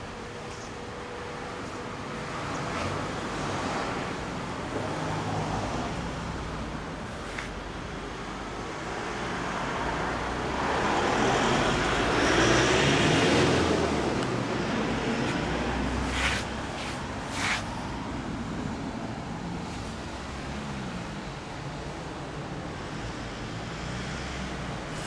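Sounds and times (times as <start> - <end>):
vehicle passing: 9.0 - 18.8
short hissing bursts: 16.0 - 17.7.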